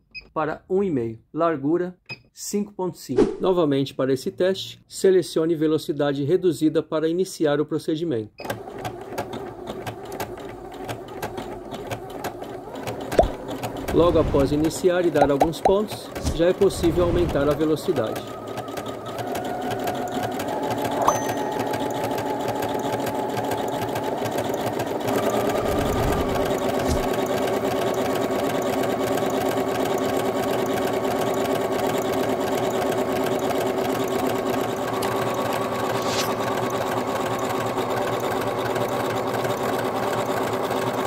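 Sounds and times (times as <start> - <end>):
sewing machine stitching: 8.4 - 41.0.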